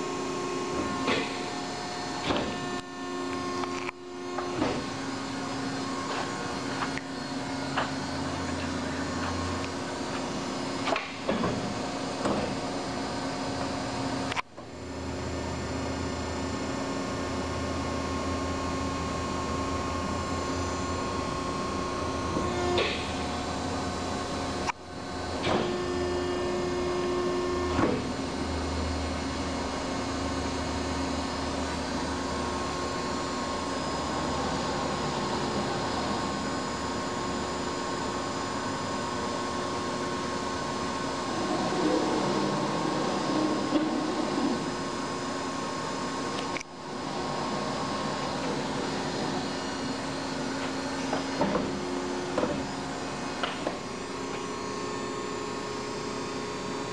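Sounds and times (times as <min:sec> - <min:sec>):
machine hum: 0:00.0 - 0:56.9
low drone: 0:40.5 - 0:51.0.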